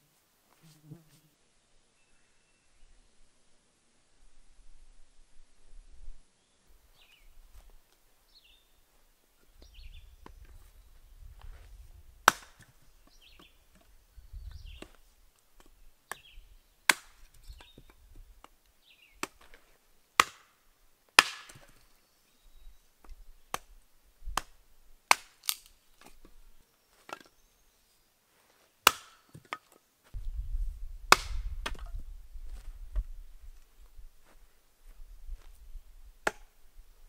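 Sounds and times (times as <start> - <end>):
hatchet chopping wood: 12.2 - 13.8, 16.9 - 18.0, 19.2 - 19.5, 20.2 - 20.6, 21.2 - 21.8, 23.5 - 23.7, 24.3 - 26.2, 28.8 - 29.6, 31.1 - 31.9, 36.2 - 36.5.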